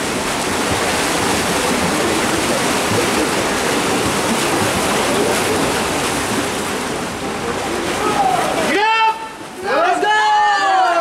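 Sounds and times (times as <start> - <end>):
swimmers splashing water: 0.0 - 11.0
faint voices: 7.2 - 10.0.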